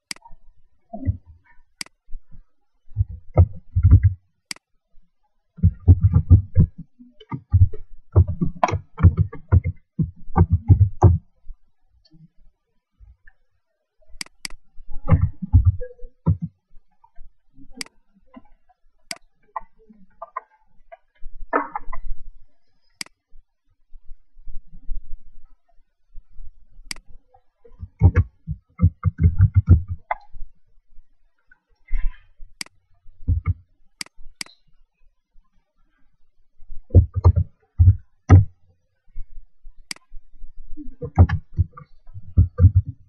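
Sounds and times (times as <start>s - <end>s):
sharp single clicks: 14.2s - 14.6s.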